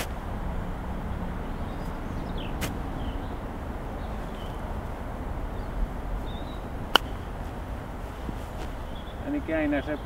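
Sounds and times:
faint bird chirps: 8.8 - 10.0.

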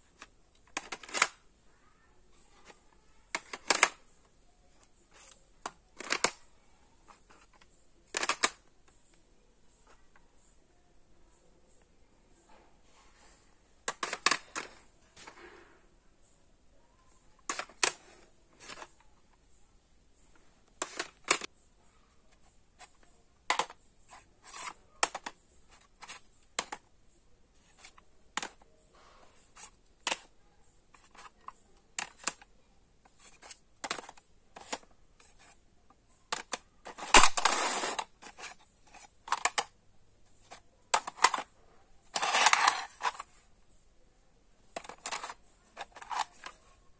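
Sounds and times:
plastic cassette cases clattering: 0.2 - 1.4, 2.6 - 4.0, 5.6 - 6.4, 7.2 - 8.6, 13.8 - 15.4, 17.4 - 19.0, 20.8 - 21.5, 22.8 - 23.8, 24.5 - 26.8, 30.9 - 32.5, 33.1 - 35.6, 36.3 - 39.7, 40.4 - 41.5, 42.1 - 43.4, 44.7 - 46.7.

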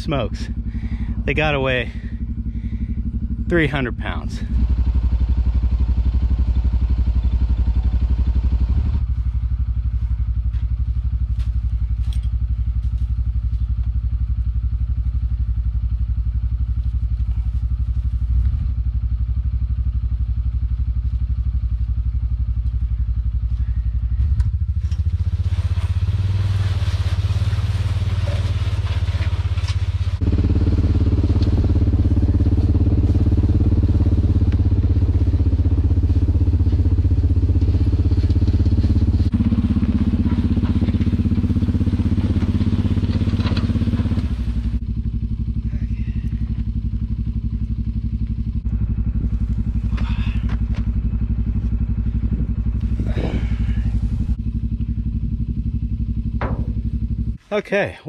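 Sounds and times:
tractor engine running: 0.0 - 57.9.

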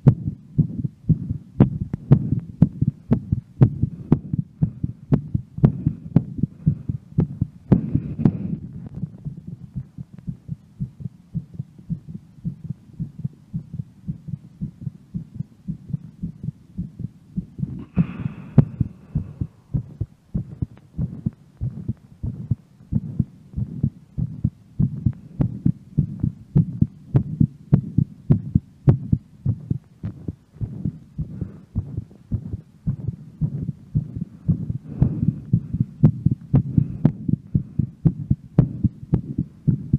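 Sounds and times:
heart beating fast: 0.0 - 39.9
person breathing: 3.7 - 8.8, 17.7 - 23.9, 30.6 - 33.2, 34.0 - 39.9.

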